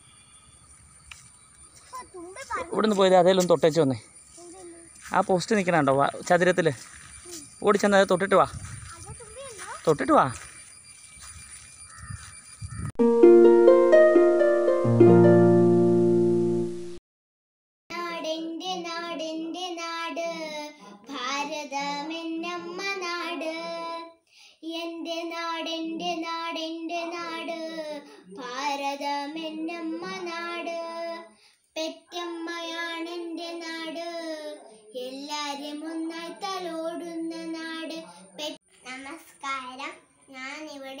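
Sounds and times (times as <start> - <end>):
girl singing: 8.8 - 9.8, 17.9 - 38.6.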